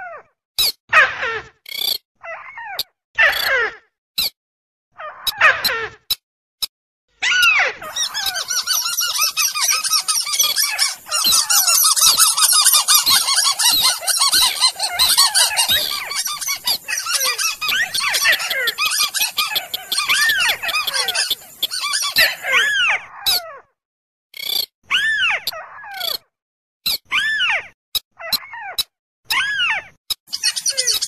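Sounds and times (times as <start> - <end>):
birds chattering chorus: 7.8 - 22.7, 30.3 - 31.0
sharp bird clicks: 7.9 - 22.7.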